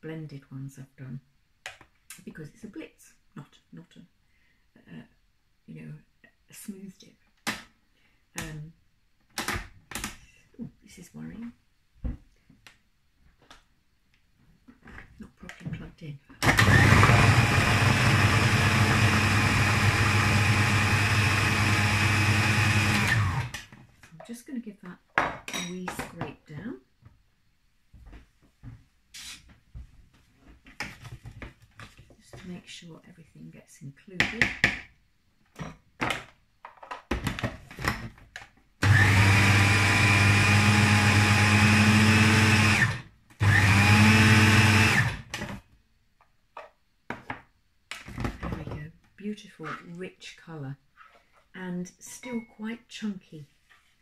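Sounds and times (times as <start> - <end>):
food processor whining: 16.4 - 23.7, 38.8 - 45.6.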